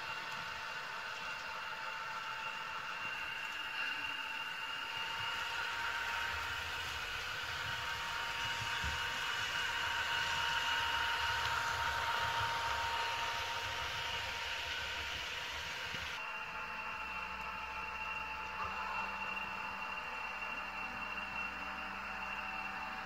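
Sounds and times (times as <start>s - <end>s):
model train wheels rumbling on track: 0.0s - 16.2s
high whine: 0.0s - 23.0s
model train diesel engine sound: 0.0s - 23.0s.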